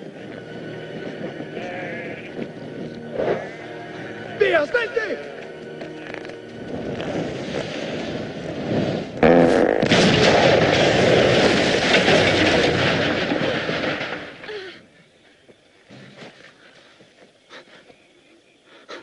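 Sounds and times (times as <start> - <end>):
fire and debris noise: 0.0 - 16.9
explosion blast: 7.4 - 14.4.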